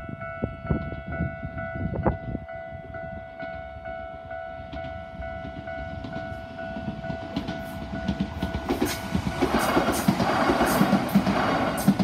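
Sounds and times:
electric train passing: 0:00.0 - 0:12.0
train wheels clacking on rail joints: 0:04.7 - 0:12.0.

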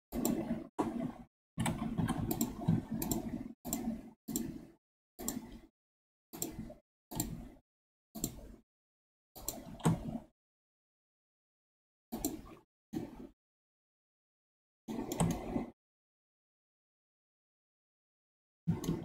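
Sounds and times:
mouse and keyboard clicks: 0:01.6 - 0:04.6, 0:15.0 - 0:15.5.

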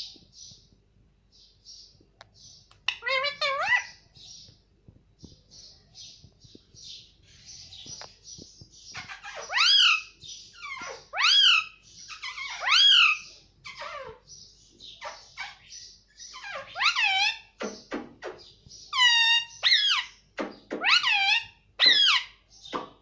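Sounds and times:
parakeet calling: 0:02.7 - 0:04.5, 0:08.7 - 0:22.9
parakeet scratchy chatter: 0:02.8 - 0:04.1, 0:08.7 - 0:20.2, 0:20.8 - 0:22.3.

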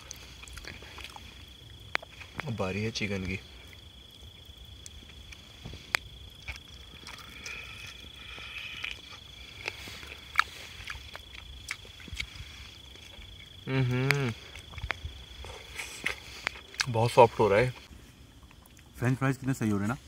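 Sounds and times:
person chewing food: 0:00.0 - 0:02.5, 0:03.6 - 0:17.0, 0:17.7 - 0:19.0
high insect trill: 0:00.0 - 0:20.0
person humming mmm: 0:13.6 - 0:14.6.

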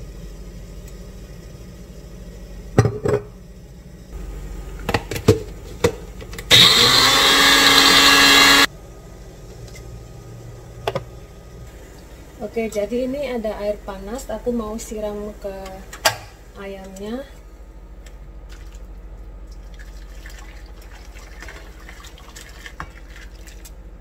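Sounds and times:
blender motor running: 0:06.5 - 0:08.7.

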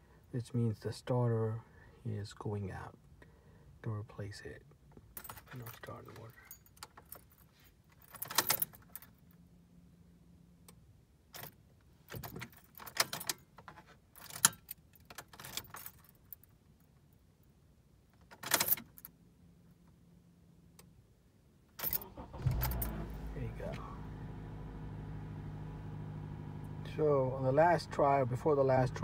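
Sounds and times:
keys jangling in ignition: 0:05.1 - 0:09.2, 0:11.4 - 0:16.6, 0:18.2 - 0:19.1, 0:21.8 - 0:24.0.

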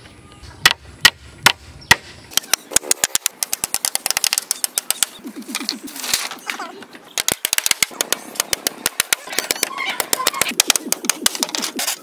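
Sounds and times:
hammer striking bamboo poles: 0:00.6 - 0:05.2, 0:07.1 - 0:12.0.

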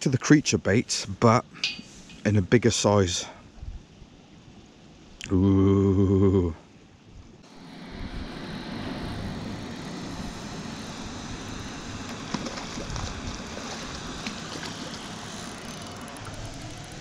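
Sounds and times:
wind buffeting microphone: 0:07.9 - 0:14.6.

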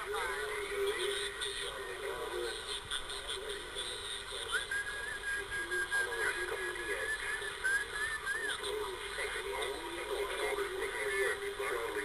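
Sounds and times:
radio static hiss: 0:00.0 - 0:12.0
radio whistle tone: 0:04.3 - 0:09.0.

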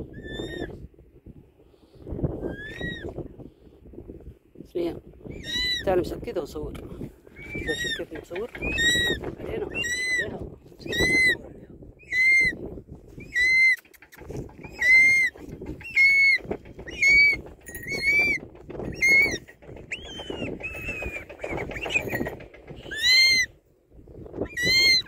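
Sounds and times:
eagle whistled call: 0:02.5 - 0:03.1, 0:07.4 - 0:10.3, 0:10.9 - 0:11.4, 0:12.0 - 0:12.6, 0:14.6 - 0:22.3.

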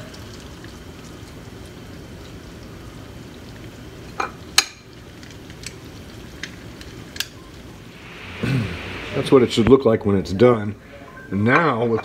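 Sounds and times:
water simmering in a wok: 0:00.0 - 0:08.7.

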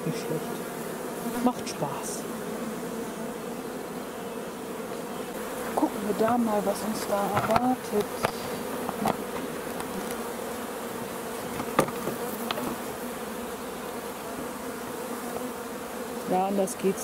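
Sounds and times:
bees buzzing: 0:00.0 - 0:17.0.

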